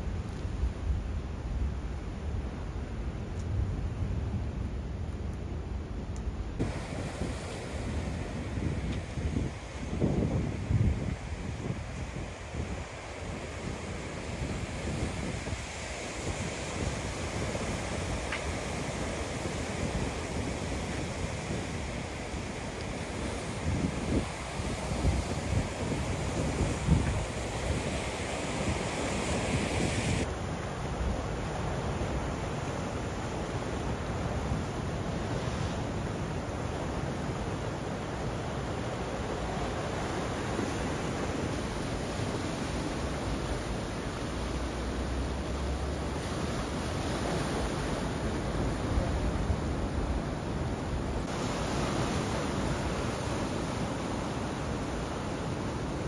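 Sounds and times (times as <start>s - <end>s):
wind rumbling on microphone: 0.0s - 56.0s
waves breaking on shore: 6.4s - 56.0s
sea waves breaking on rocks: 33.8s - 56.0s.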